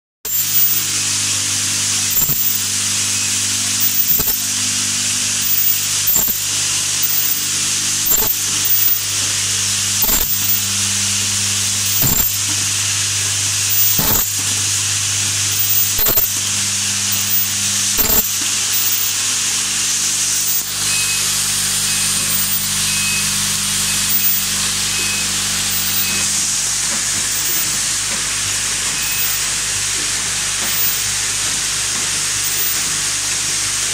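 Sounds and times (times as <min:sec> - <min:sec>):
sharp machine clack: 0:00.3 - 0:31.2
machinery hiss: 0:00.3 - 0:33.9
vibratory feeders humming: 0:00.3 - 0:33.9.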